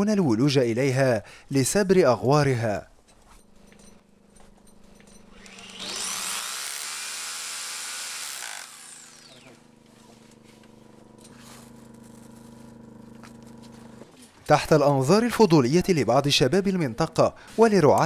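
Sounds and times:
hammer drill boring into rock: 5.3s - 9.7s.

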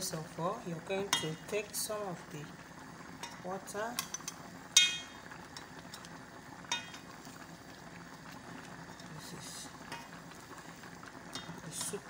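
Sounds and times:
stock simmering in a pot: 0.0s - 12.0s
spoon clinking on pot: 4.0s - 6.0s, 6.7s - 7.1s.

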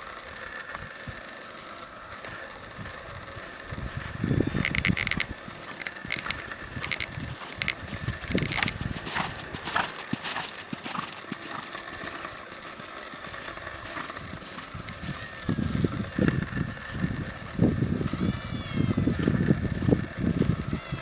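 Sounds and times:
horse hoofbeats on sand: 5.4s - 17.0s.

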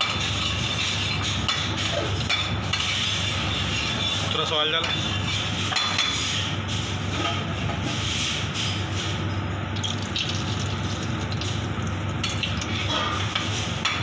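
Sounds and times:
constant low hum: 0.0s - 14.0s.

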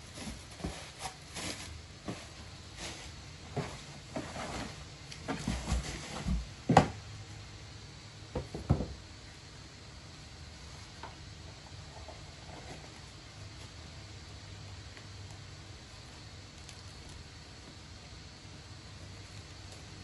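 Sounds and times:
cardboard box knocks and scrapes: 0.1s - 7.0s.

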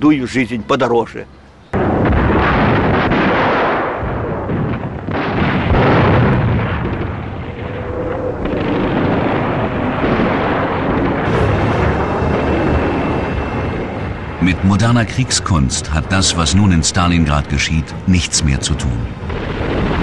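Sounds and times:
artillery fire and explosions: 1.7s - 20.0s.

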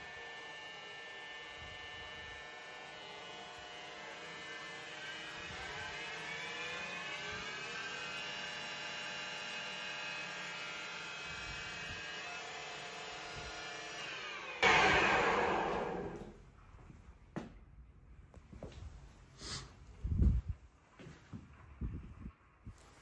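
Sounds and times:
lathe whining: 10.2s - 16.3s
loud rush of noise: 14.6s - 16.3s.

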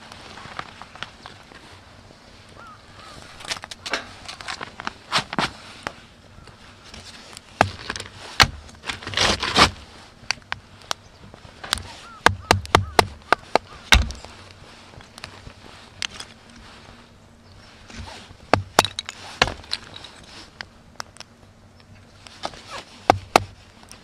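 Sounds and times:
stick knocking on knife spine: 11.7s - 14.2s.

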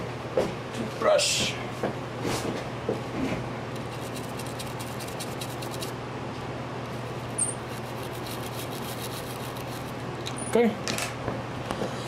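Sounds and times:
steady low hum: 0.0s - 12.0s
toothbrush scrubbing circuit board: 3.8s - 5.9s, 7.6s - 9.9s.

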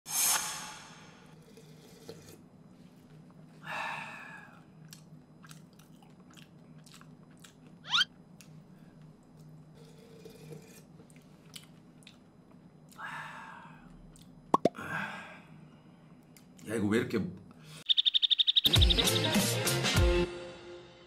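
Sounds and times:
slurping from spoon: 1.3s - 2.5s, 9.8s - 11.1s
wet lip smacks and mouth clicks: 4.8s - 7.8s
short sharp rising squeak: 7.9s - 8.1s.

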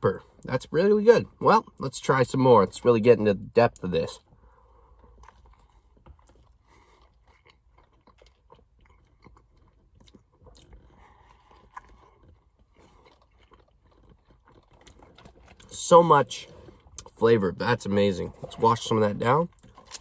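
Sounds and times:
person chewing food: 4.2s - 15.8s, 19.5s - 20.0s.

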